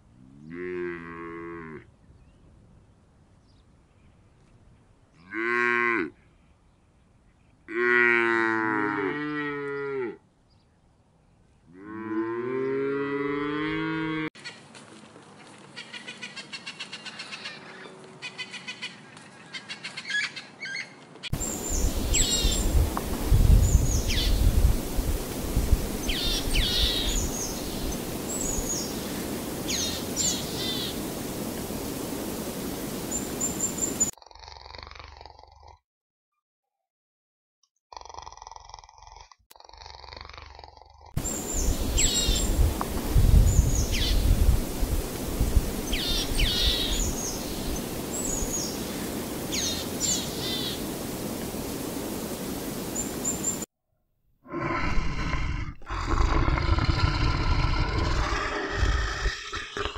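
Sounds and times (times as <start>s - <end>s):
low rumbles: 21.4s - 34.1s, 41.2s - 53.5s
steady rushing noise: 21.4s - 34.1s, 41.2s - 53.7s
bird chattering: 25.1s - 31.2s, 45.7s - 50.9s.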